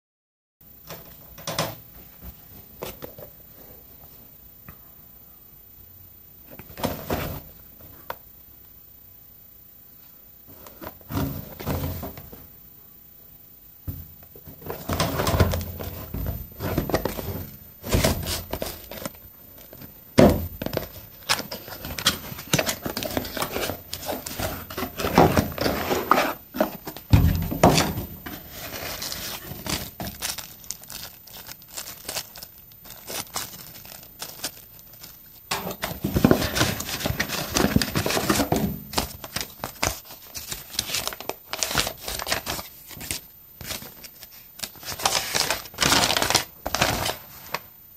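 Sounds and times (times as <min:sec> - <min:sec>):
cardboard packaging crinkling: 0:14.7 - 0:20.0, 0:20.6 - 0:47.6.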